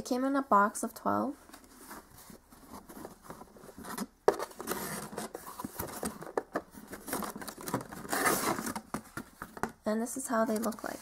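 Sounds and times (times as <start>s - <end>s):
cardboard scraping and rustling: 1.5s - 9.7s.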